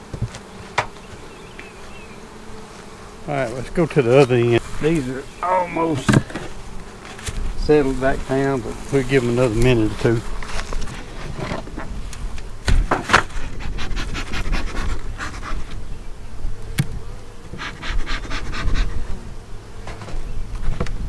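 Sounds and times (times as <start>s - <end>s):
bee smoker bellows puffs: 0.0s - 15.9s, 16.5s - 21.0s
bees buzzing: 0.0s - 20.8s
hive covers knocking: 4.6s - 7.4s.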